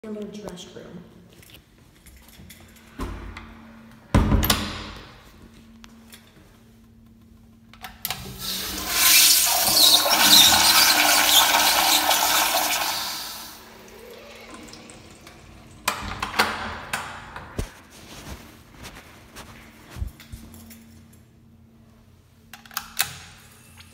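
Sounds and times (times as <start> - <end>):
toilet flushing: 8.2 - 17.0.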